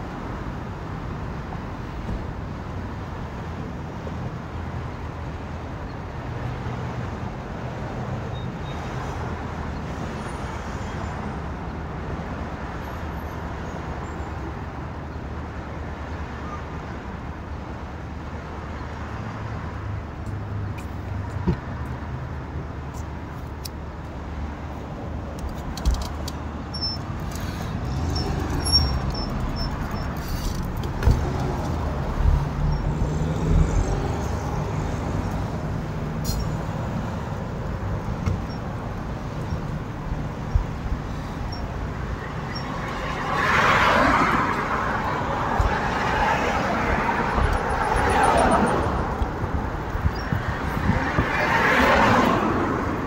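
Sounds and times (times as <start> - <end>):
low rumble of vehicles: 0.0 - 53.0.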